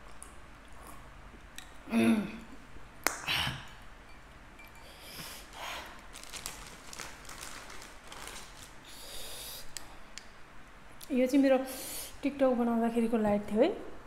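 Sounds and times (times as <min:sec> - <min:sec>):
person sniffing and breathing: 0:08.8 - 0:09.8
breathy exhale: 0:08.9 - 0:09.7.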